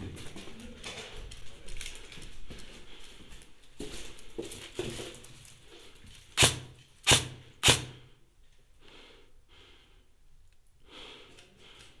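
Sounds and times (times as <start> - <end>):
airsoft gun shots: 6.4 - 8.1.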